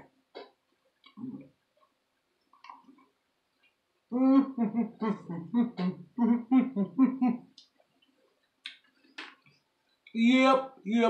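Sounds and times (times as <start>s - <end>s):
person humming: 4.1s - 7.4s.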